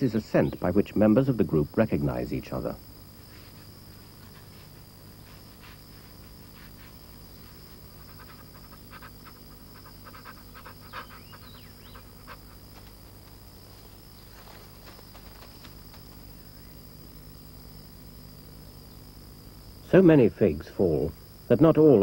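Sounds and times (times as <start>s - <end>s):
high insect drone: 0.0s - 22.0s
peccaries snuffling and sniffing: 3.3s - 16.1s.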